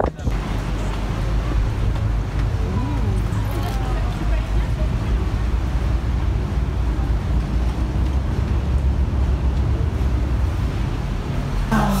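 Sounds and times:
wind buffeting microphone: 0.0s - 0.4s
boat engine rumbling: 0.0s - 12.0s.

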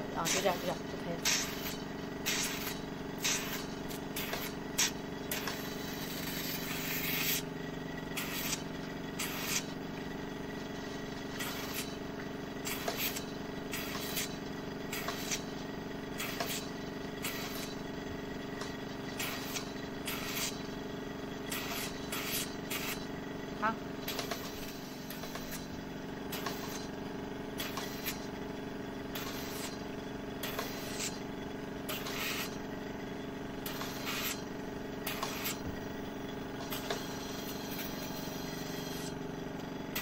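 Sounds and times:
suction handpiece hissing slurps: 1.2s - 7.5s, 8.2s - 8.6s, 9.2s - 9.7s, 19.2s - 20.6s, 21.5s - 23.0s, 35.1s - 35.6s.

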